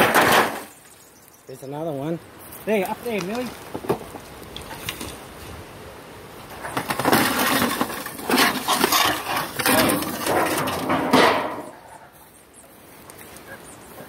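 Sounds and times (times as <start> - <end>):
roofing sheets scraping and clattering: 0.0 - 0.8, 6.4 - 12.2.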